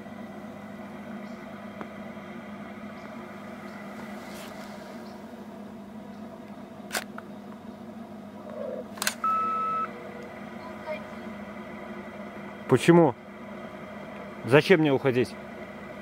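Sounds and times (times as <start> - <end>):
low hum and hiss: 0.0 - 16.0
sharp clicks: 9.0 - 9.2
electronic beep: 9.2 - 9.9.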